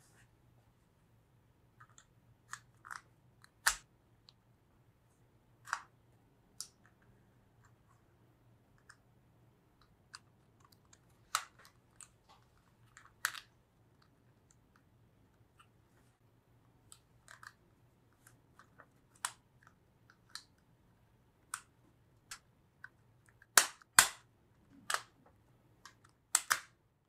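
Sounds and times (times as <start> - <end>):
plastic parts clicking into place: 10.1 - 13.5, 24.8 - 25.2, 25.8 - 26.8.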